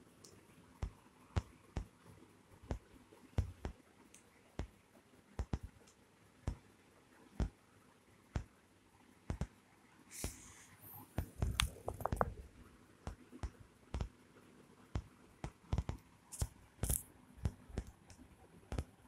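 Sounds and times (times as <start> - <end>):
handling taps and rustles: 11.2 - 12.4.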